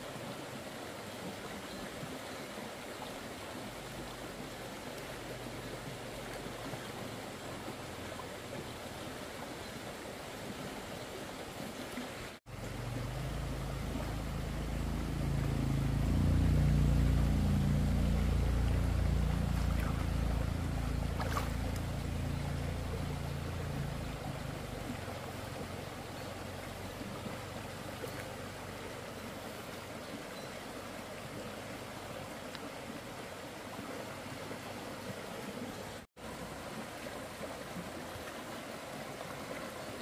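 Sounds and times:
stream water flowing: 0.0s - 40.0s
low rumble: 12.5s - 25.0s.

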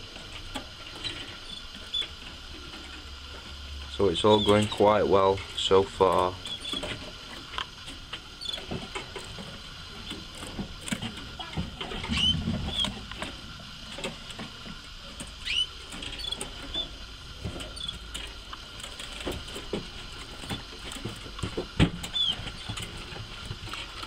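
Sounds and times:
canaries chirping: 0.8s - 3.0s, 4.0s - 5.4s, 6.1s - 7.1s, 8.4s - 9.0s, 11.3s - 13.0s, 15.2s - 16.9s, 21.5s - 22.9s.

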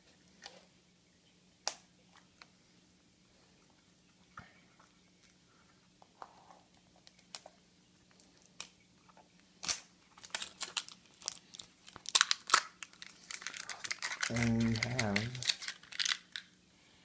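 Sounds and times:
wrapper crinkling and tearing: 9.6s - 16.5s.

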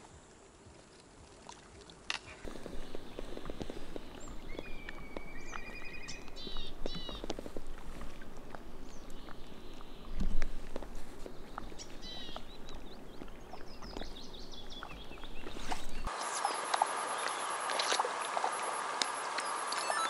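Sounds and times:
light ticks of water: 0.0s - 20.0s
small birds chirping: 2.4s - 7.4s, 8.0s - 17.7s
low wind rumble: 2.5s - 16.1s
steady hiss: 16.1s - 20.0s.

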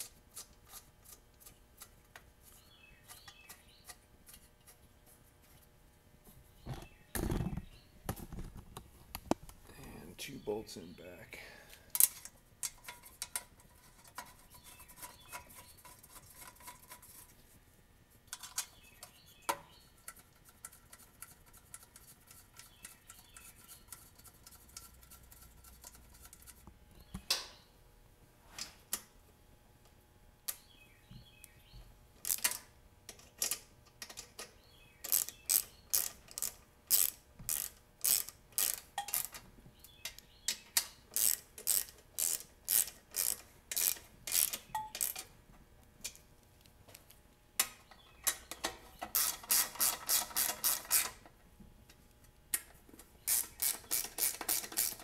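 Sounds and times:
ratchet wrench clicking: 35.0s - 39.4s, 41.1s - 45.2s, 49.1s - 51.2s, 53.3s - 55.0s.

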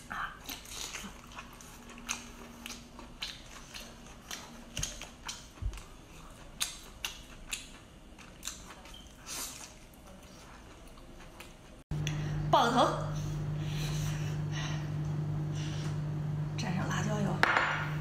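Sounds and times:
biting and eating: 0.3s - 11.8s.

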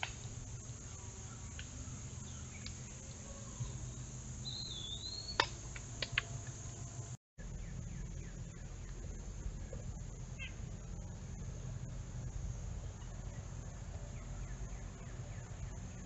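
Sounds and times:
high insect drone: 0.0s - 16.0s
wavering bird whistle: 4.4s - 5.5s.

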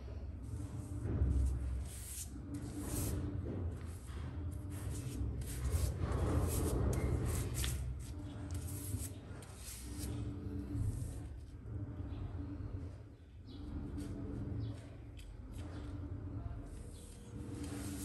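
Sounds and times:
paintbrush swishing on paper: 1.4s - 3.2s, 4.6s - 10.3s.

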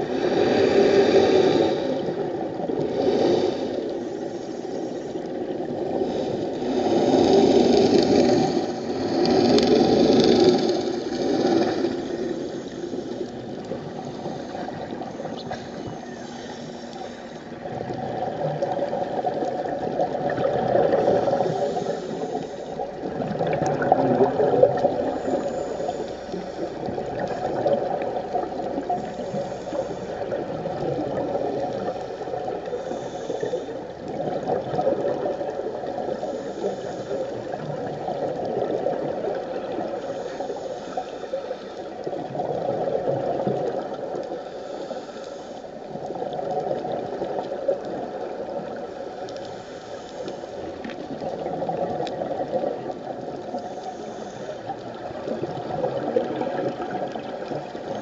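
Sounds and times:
faint hiss: 0.0s - 19.3s, 20.0s - 23.1s, 24.7s - 34.4s, 43.4s - 46.7s, 47.9s - 51.0s, 53.3s - 55.6s
underwater regulator bubbling: 5.2s - 40.6s, 50.3s - 58.0s.

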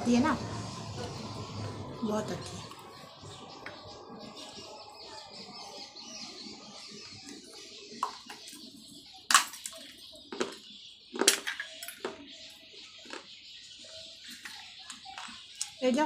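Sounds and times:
clay cup crunched between teeth: 9.3s - 12.2s, 13.0s - 13.3s.

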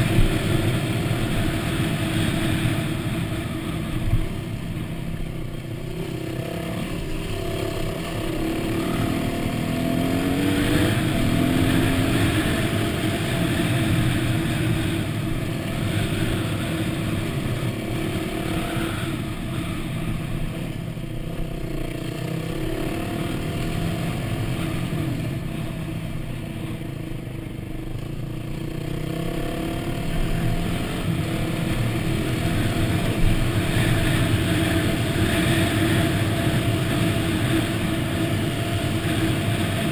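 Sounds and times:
dirt bike engine revving: 0.0s - 4.5s, 5.8s - 20.8s, 28.7s - 39.9s.

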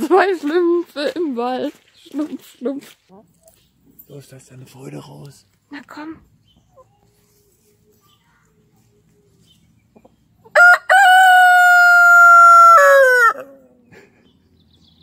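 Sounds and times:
rooster crowing: 10.5s - 13.5s.

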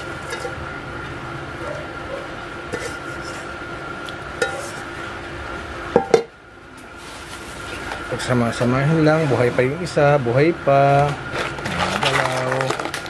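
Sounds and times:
clinks against metal basin: 0.2s - 0.6s.

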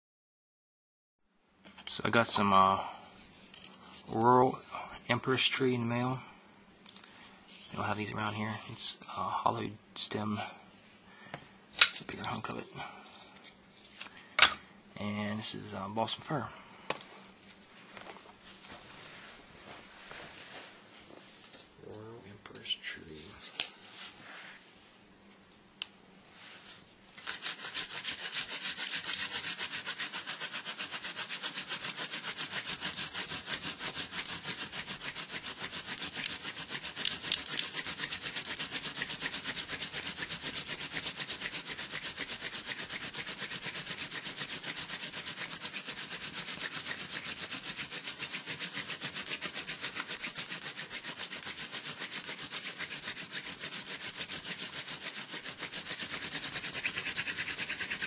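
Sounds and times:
wooden spindle rubbing in notch: 7.5s - 9.0s, 27.1s - 58.0s.

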